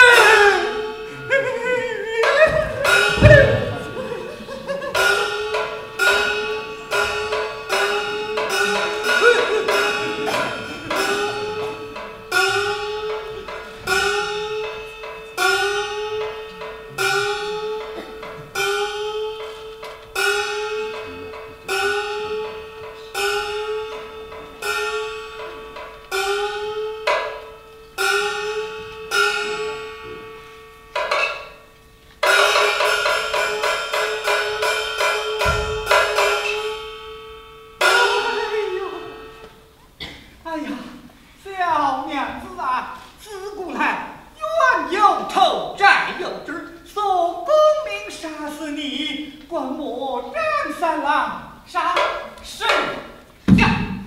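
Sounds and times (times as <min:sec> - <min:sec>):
gong strokes ringing: 0:00.0 - 0:40.2.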